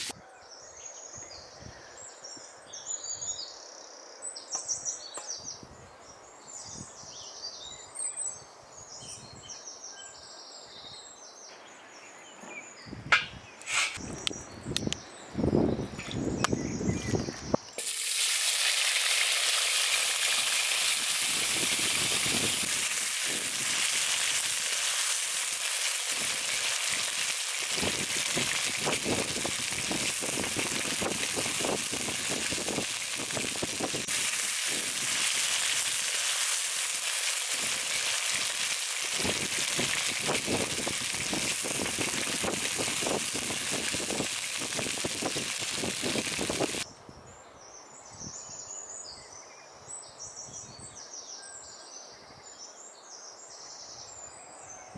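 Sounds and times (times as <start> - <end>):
wooden spatula scraping pan: 13.6 - 14.0
potatoes sizzling in oil: 17.8 - 46.8.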